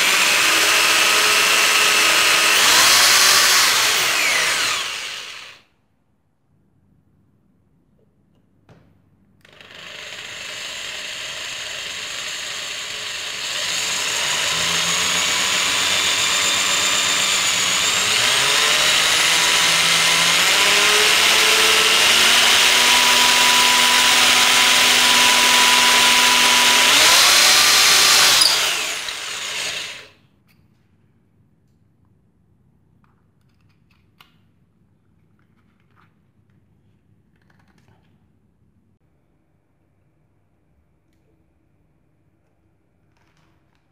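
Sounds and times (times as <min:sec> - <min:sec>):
electric drill boring into wood: 0:00.0 - 0:05.6, 0:09.4 - 0:30.1.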